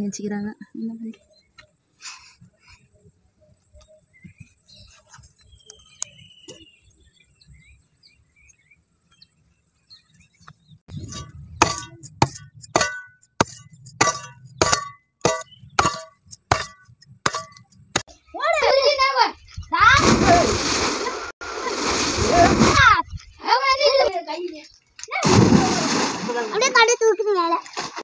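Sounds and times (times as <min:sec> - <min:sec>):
sharp glassy clinks: 0:10.9 - 0:18.1.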